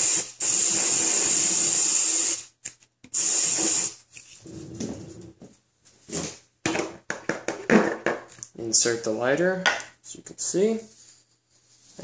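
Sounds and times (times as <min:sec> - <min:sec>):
aerosol spray hissing: 0:03.1 - 0:04.0
soft handling sounds: 0:10.5 - 0:12.0.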